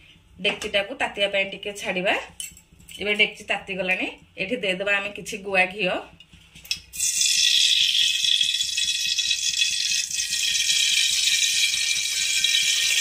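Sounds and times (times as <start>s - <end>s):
ghee sizzling in metal pot: 6.9s - 13.0s.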